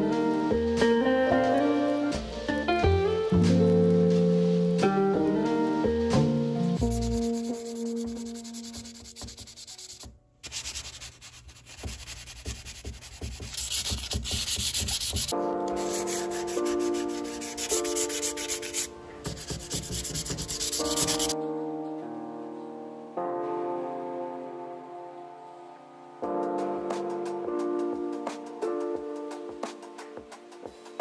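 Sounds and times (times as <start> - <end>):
background music: 0.0 - 31.0
sanding wood by hand: 6.8 - 21.4.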